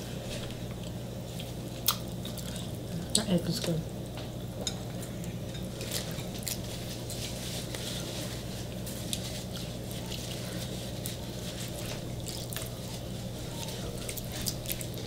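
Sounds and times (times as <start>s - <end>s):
steady low hum: 0.0s - 15.0s
wet noodle eating sounds: 5.0s - 15.0s.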